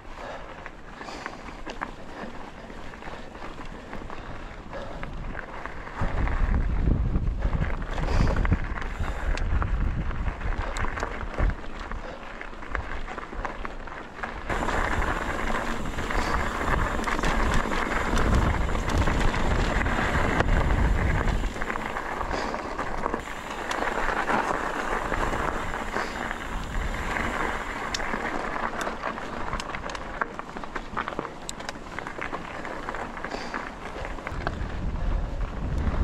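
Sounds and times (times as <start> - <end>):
bike tyres rolling on gravel: 0.0 - 36.0
wind buffeting microphone: 4.1 - 12.1, 14.5 - 30.1, 33.8 - 36.0
bike clicks and knocks: 10.5 - 34.7.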